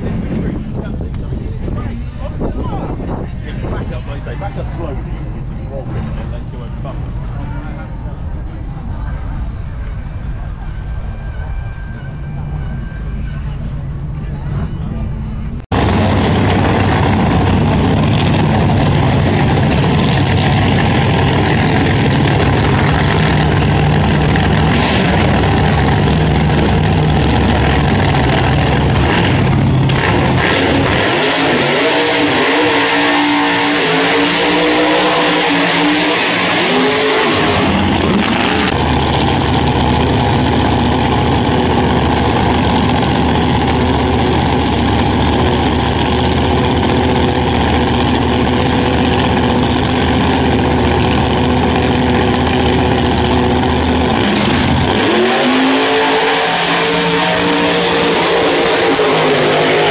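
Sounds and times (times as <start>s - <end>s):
racing car engine revving: 15.7s - 59.9s.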